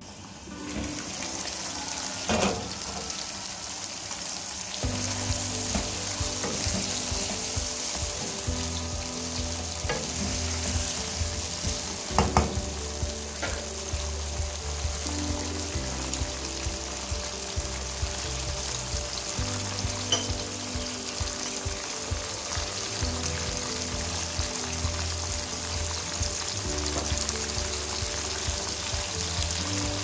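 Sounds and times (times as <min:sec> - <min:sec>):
food sizzling in oil: 0:00.0 - 0:30.0
spatula knocking against pan: 0:12.1 - 0:12.6.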